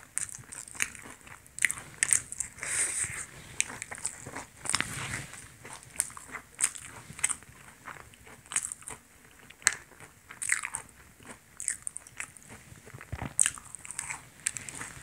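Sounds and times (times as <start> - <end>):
chewing: 0.0 - 15.0
fried crust crunching: 3.6 - 15.0.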